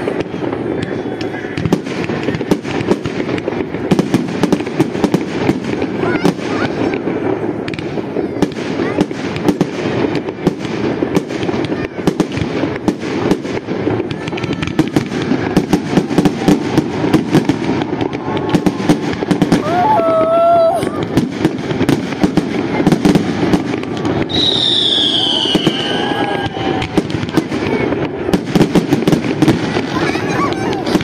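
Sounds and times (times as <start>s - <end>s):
fireworks bangs and crackles: 0.0s - 31.0s.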